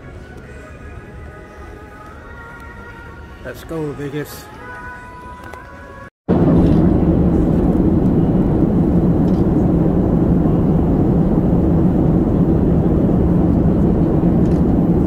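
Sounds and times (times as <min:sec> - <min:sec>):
jet engine drone in cabin: 0:06.3 - 0:15.0.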